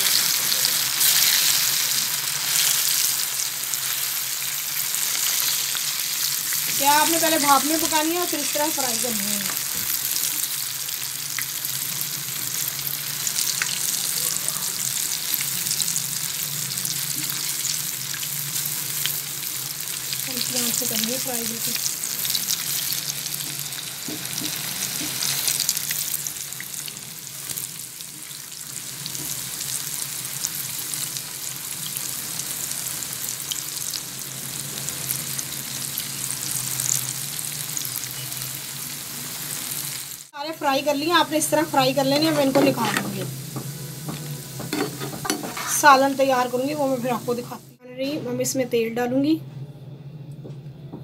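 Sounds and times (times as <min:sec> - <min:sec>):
dumplings sizzling in hot oil: 0:00.0 - 0:47.8
spatula stirring in pan: 0:42.1 - 0:46.0.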